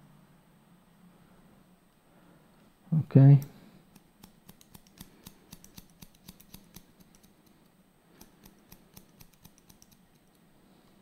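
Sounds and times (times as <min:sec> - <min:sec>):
scissors snipping hair: 0:03.4 - 0:07.5, 0:08.2 - 0:10.4.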